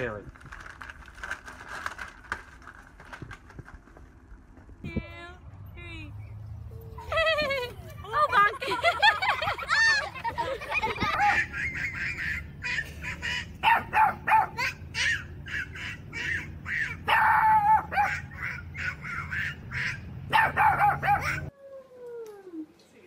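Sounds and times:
dog barking in high yaps: 13.6s - 15.2s, 16.8s - 21.5s.

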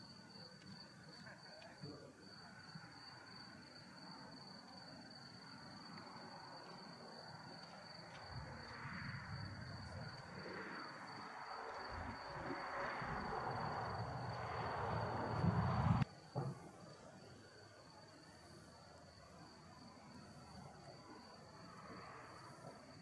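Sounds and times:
crickets trilling: 0.0s - 23.0s
low rumbling noise: 11.8s - 16.0s.

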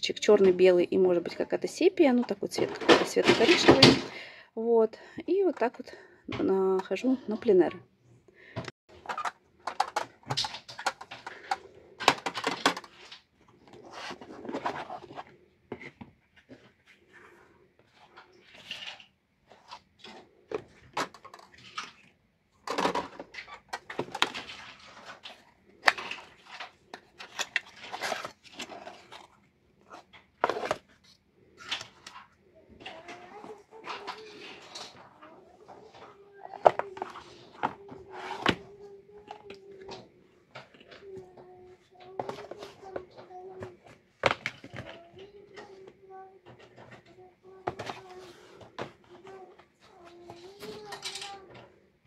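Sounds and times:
boxes clicking and knocking on table: 2.2s - 4.2s, 8.9s - 16.7s, 20.0s - 31.0s, 35.8s - 41.3s, 42.0s - 45.9s, 46.5s - 49.4s.

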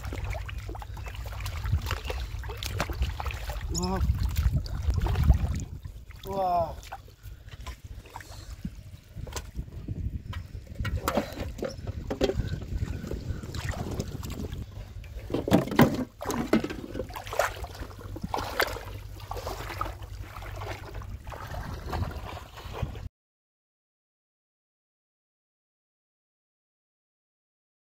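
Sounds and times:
splashes and knocks: 0.0s - 9.6s, 10.3s - 23.0s
wind rumbling on microphone: 0.0s - 23.1s.

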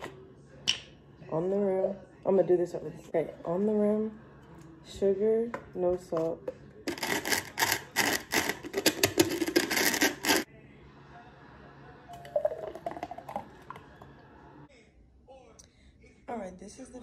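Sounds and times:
cup rim scraping in sugar: 6.9s - 10.5s
drink pouring into a cup: 12.1s - 14.2s.

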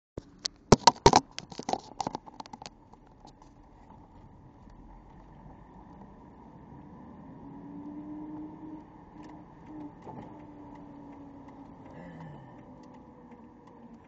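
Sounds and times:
car engine idling: 7.9s - 14.0s.

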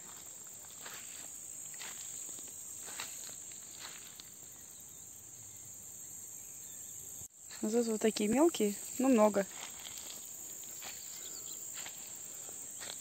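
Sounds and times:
soft footsteps on soil: 0.0s - 4.5s, 7.5s - 13.0s
insects chirring: 0.0s - 13.0s.

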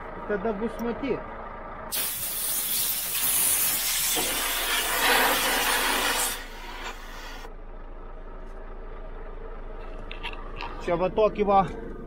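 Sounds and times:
compressed air hissing: 1.9s - 7.5s.

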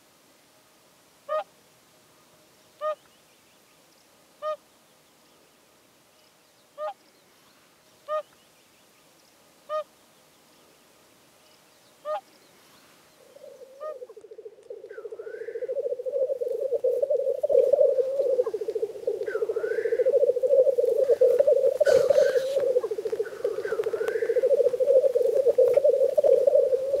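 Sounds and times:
brief higher bird calls: 12.0s - 27.0s
grouse bubbling song: 13.2s - 27.0s
swan honking: 15.3s - 27.0s.

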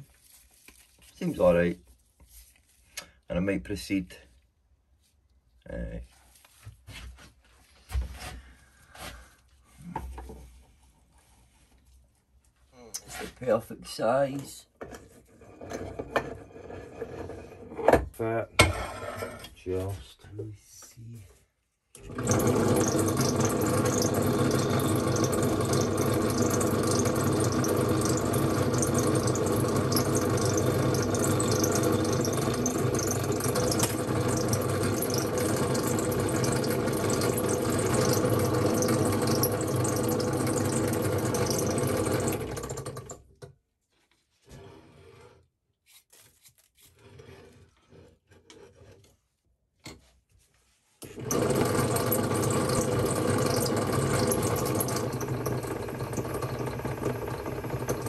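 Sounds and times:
motor hum: 22.0s - 43.2s, 51.0s - 58.0s
drill bit cutting steel: 22.2s - 42.4s.

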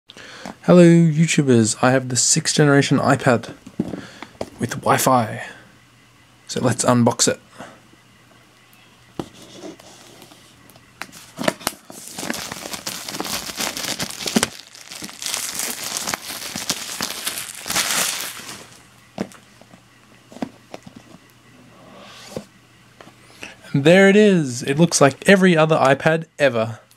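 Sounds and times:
box being handled: 11.1s - 21.2s
plastic wrap crinkling: 11.2s - 18.8s.

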